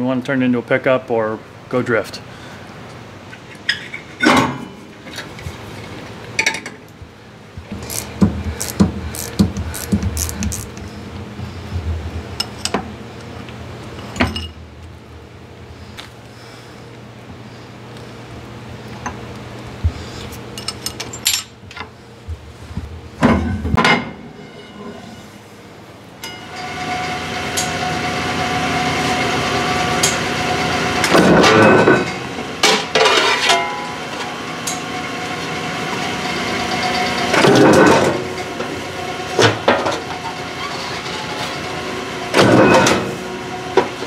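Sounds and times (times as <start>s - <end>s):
steady low hum: 0.0s - 32.7s.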